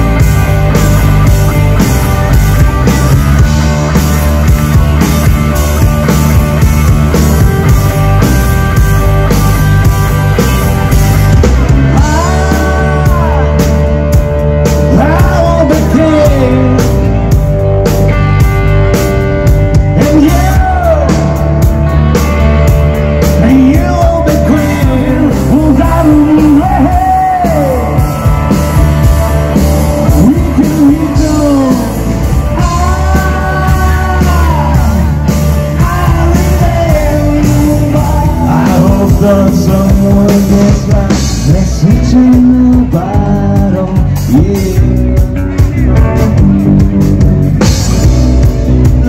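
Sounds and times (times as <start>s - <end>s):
bass guitar: 0.0s - 49.0s
drum kit: 0.0s - 49.0s
electric guitar: 0.0s - 49.0s
person singing: 11.7s - 17.2s, 19.9s - 21.6s, 23.2s - 47.2s.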